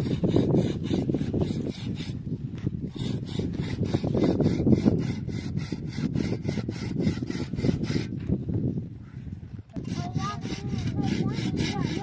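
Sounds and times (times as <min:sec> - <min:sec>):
fast rhythmic scraping strokes: 0:09.8 - 0:12.0.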